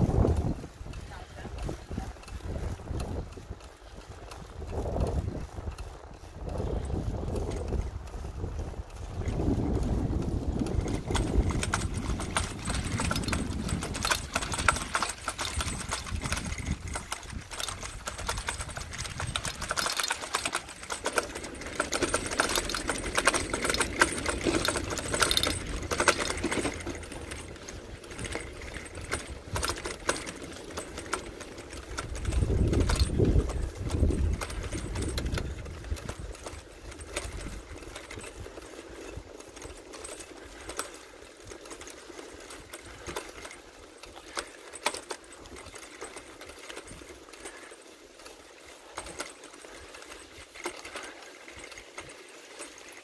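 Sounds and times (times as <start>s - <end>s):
wind rumbling on microphone: 0.0s - 44.5s
bicycle rattling and clicking: 0.0s - 53.0s.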